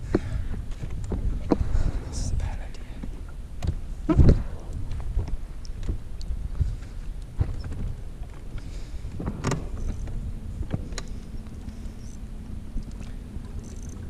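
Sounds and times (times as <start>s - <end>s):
wind on microphone: 0.0s - 14.0s
camera handling rumble: 0.1s - 14.0s
electric boat motor humming: 5.3s - 14.0s.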